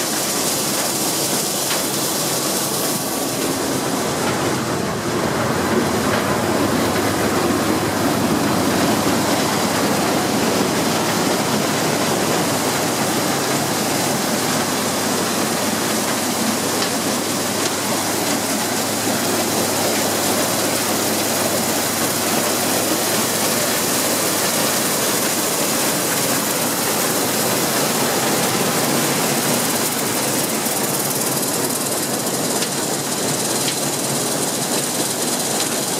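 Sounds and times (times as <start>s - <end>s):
corn sheller running: 0.0s - 35.9s
kernels streaming into metal wagon: 0.0s - 35.9s.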